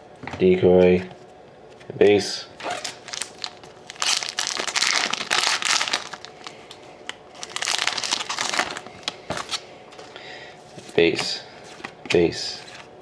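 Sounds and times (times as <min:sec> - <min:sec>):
foil wrapper crinkling: 0:02.6 - 0:10.1.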